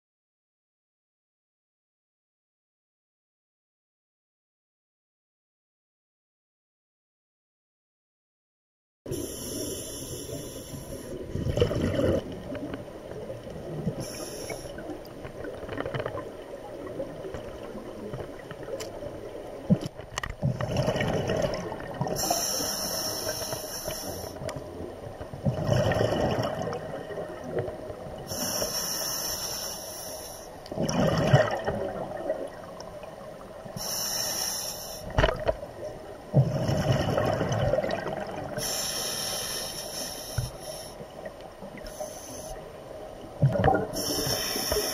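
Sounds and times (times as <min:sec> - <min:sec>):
regulator hissing inhale: 0:09.1 - 0:11.2, 0:14.0 - 0:14.9, 0:22.2 - 0:24.5, 0:28.3 - 0:30.6, 0:33.8 - 0:35.2, 0:38.6 - 0:41.1, 0:41.8 - 0:42.7, 0:43.9 - 0:44.9
gurgling exhaled bubbles: 0:11.1 - 0:14.2, 0:14.8 - 0:22.4, 0:25.4 - 0:28.3, 0:30.7 - 0:33.0, 0:36.3 - 0:38.6, 0:43.4 - 0:44.9.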